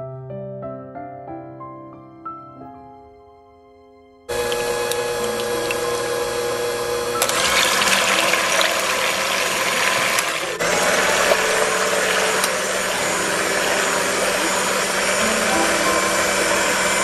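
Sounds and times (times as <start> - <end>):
electric hand mixer whipping: 4.3 - 17.0.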